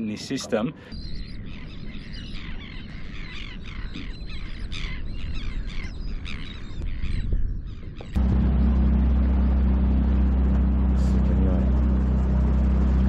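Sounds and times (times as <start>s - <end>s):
seabirds squawking: 0.1s - 10.4s
low rumble: 8.1s - 13.0s.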